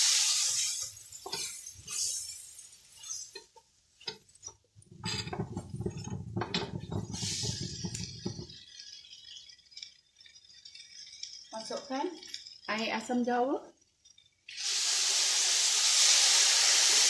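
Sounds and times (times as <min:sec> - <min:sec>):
spatula scraping a wok: 0:00.0 - 0:11.6.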